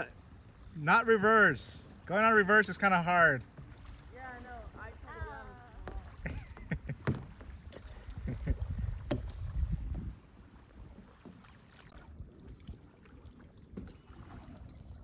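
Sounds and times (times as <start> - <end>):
paddles splashing in water: 0.0 - 15.0
wind rumble on microphone: 7.9 - 11.0.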